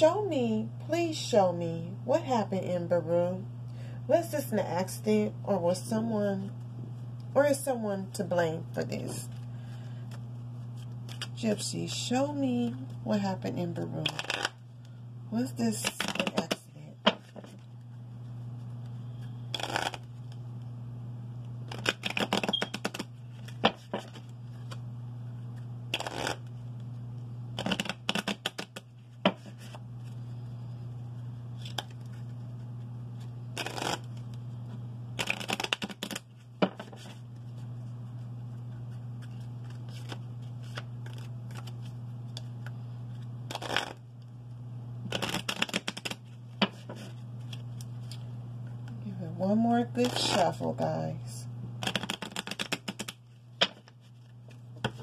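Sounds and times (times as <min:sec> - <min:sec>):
steady low hum: 0:00.0 - 0:55.0
cards being shuffled: 0:10.1 - 0:11.4, 0:14.0 - 0:14.6, 0:15.8 - 0:18.2, 0:18.8 - 0:20.4, 0:21.6 - 0:24.8, 0:25.4 - 0:27.0, 0:27.6 - 0:30.2, 0:31.6 - 0:34.5, 0:35.2 - 0:44.0, 0:45.1 - 0:48.2, 0:51.8 - 0:55.0.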